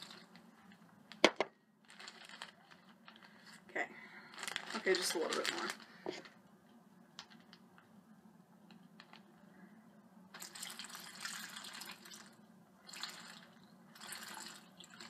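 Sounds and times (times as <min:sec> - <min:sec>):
water pouring into plastic bag: 0:00.0 - 0:00.8, 0:01.8 - 0:03.5, 0:04.3 - 0:05.9, 0:10.3 - 0:15.0.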